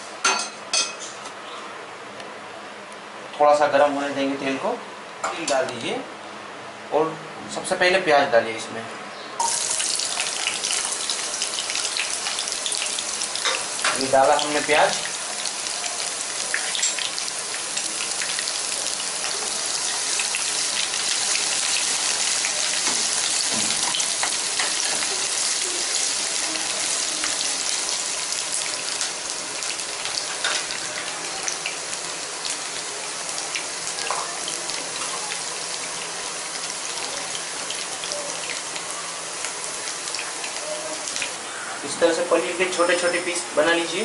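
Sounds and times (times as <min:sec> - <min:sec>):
onions sizzling in hot oil: 0:09.4 - 0:44.0.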